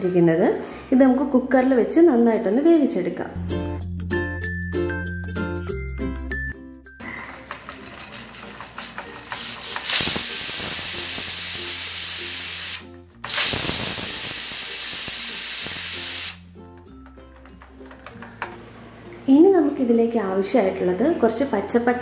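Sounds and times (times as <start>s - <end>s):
pressure cooker steam hissing: 7.0s - 16.4s
pressure cooker whistling: 7.0s - 16.4s.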